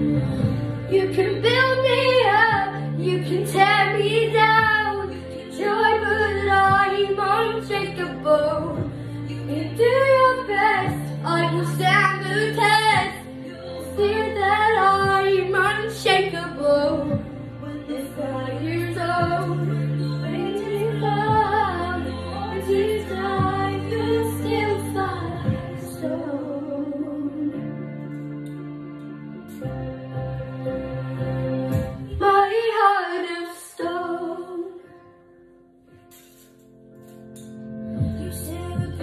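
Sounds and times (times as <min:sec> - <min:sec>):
backing track with low bass line: 0:00.0 - 0:26.3, 0:37.8 - 0:39.0
girl singing pop song: 0:00.0 - 0:28.4, 0:31.7 - 0:35.3, 0:37.0 - 0:39.0.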